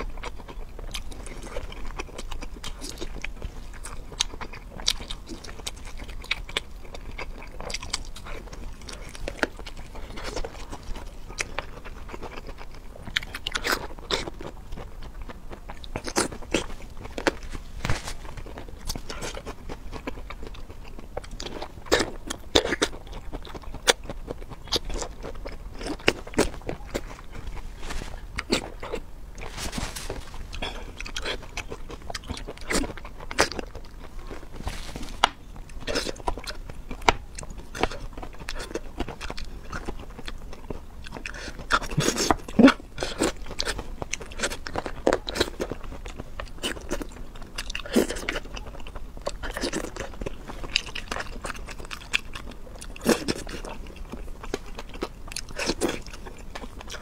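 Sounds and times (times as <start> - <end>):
person chewing crunchy food: 0.0 - 57.0.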